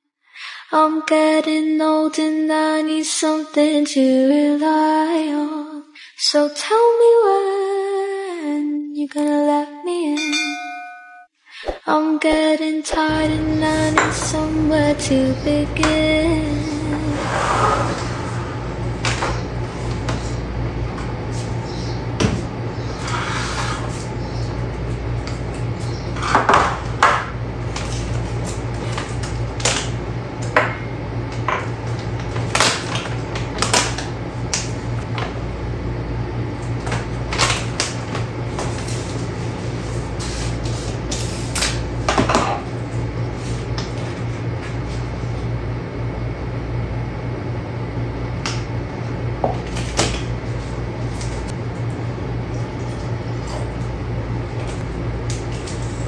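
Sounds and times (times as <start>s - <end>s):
steady low hum: 13.0s - 56.0s.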